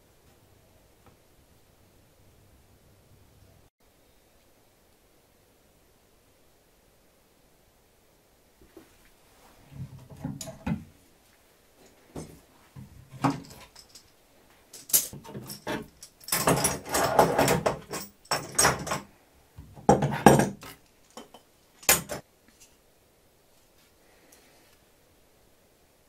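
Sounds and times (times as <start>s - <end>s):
metal clamps rattling and knocking: 9.9s - 10.8s, 12.2s - 14.1s, 14.8s - 19.1s, 19.8s - 22.2s.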